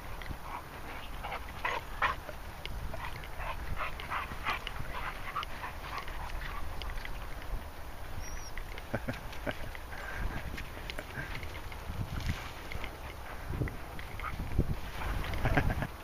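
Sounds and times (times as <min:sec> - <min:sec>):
dogs yipping and whining: 0:08.2 - 0:08.6.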